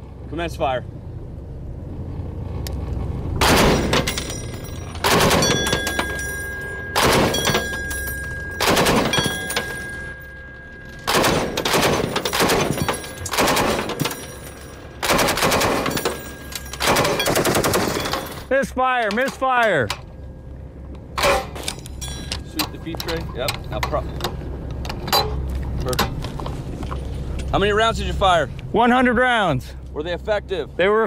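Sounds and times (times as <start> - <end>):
spent brass dinging on deck: 3.8 - 13.4
machine gun firing bursts: 5.0 - 5.8, 7.0 - 7.6, 8.6 - 9.3, 11.1 - 14.2, 15.0 - 16.2, 16.8 - 18.3.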